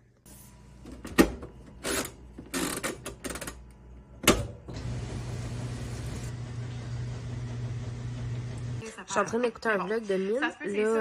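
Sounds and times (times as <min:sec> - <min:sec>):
washing machine humming: 0:00.2 - 0:08.8.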